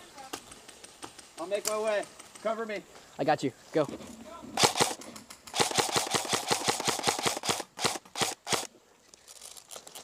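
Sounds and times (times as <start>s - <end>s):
airsoft rifle firing: 4.6s - 8.7s.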